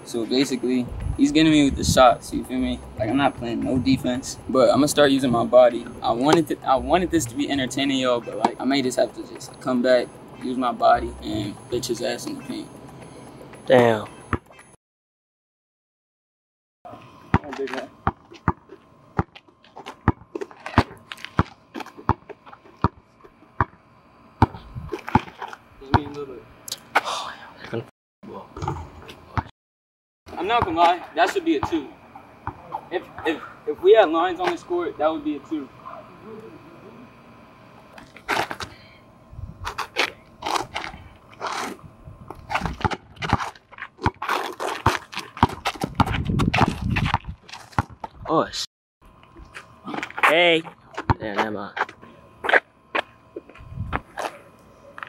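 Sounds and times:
basketball bouncing on asphalt: 0:17.3 - 0:23.8, 0:24.4 - 0:26.2, 0:30.4 - 0:32.6, 0:42.2 - 0:48.3.

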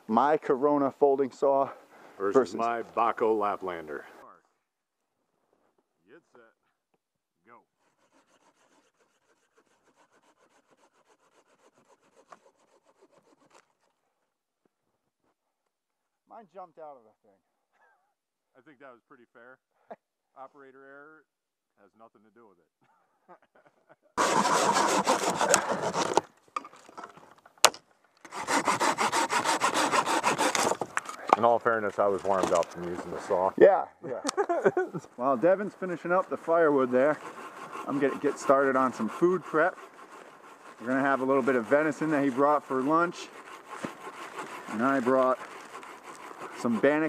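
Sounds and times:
pruning saws cutting branches: 0:07.7 - 0:14.0, 0:24.2 - 0:26.4, 0:28.2 - 0:33.6, 0:35.1 - 0:47.0.

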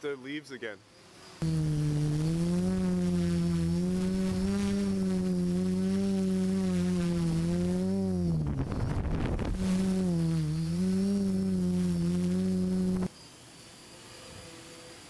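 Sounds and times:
quadcopter propellers humming: 0:01.4 - 0:13.1.

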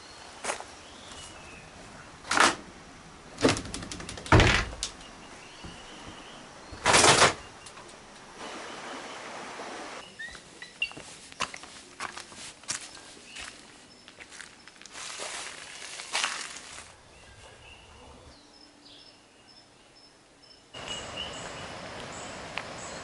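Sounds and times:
wooden thumps and knocks: 0:03.4 - 0:08.0.

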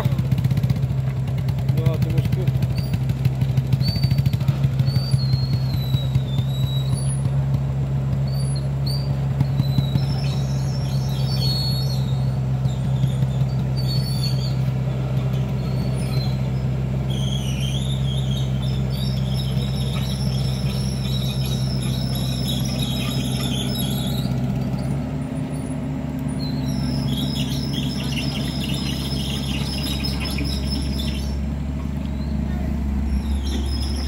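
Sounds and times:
diesel engine humming: 0:00.0 - 0:34.0
high-pitched squealing chirps: 0:15.4 - 0:24.9, 0:26.4 - 0:31.4, 0:32.1 - 0:34.0.

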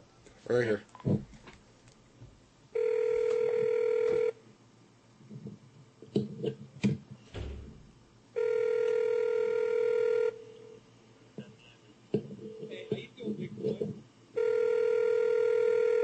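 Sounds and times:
telephone ringback tone: 0:02.8 - 0:04.4, 0:08.4 - 0:10.7, 0:14.4 - 0:16.0.

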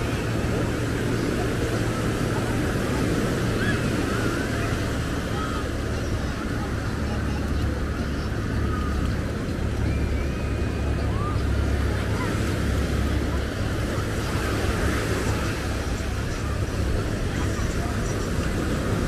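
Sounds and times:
faint distant voices: 0:00.0 - 0:19.0
low traffic rumble: 0:00.0 - 0:19.0.

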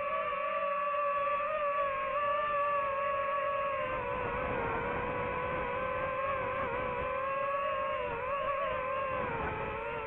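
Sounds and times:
drone propellers whining: 0:00.0 - 0:10.0.

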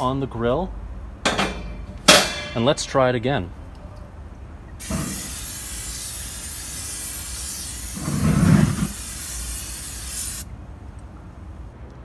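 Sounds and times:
aerosol spray hissing: 0:04.8 - 0:10.5.

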